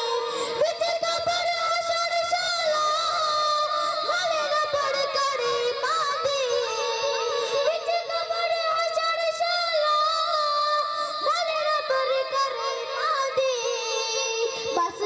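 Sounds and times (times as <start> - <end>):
boy singing into a microphone: 0.0 - 15.0.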